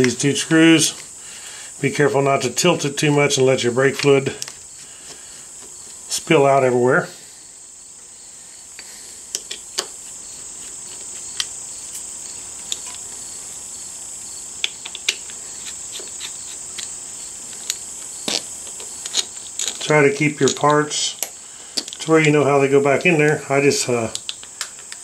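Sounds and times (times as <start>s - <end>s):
steady high-pitched hiss: 0.0s - 25.0s
screwdriver clicking on screws: 14.6s - 16.9s, 17.5s - 22.4s.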